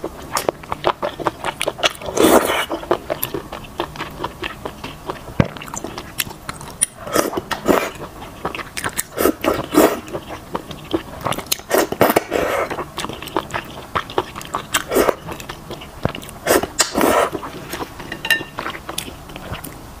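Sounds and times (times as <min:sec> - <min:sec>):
wet chewing: 0:00.0 - 0:19.8
slurping noodles: 0:01.7 - 0:02.9, 0:07.0 - 0:17.9.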